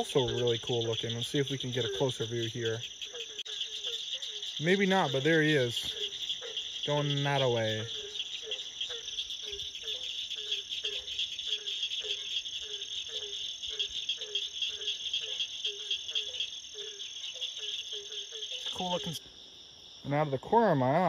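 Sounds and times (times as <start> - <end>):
frog calling: 0.0 - 21.0
night insects droning: 0.0 - 21.0.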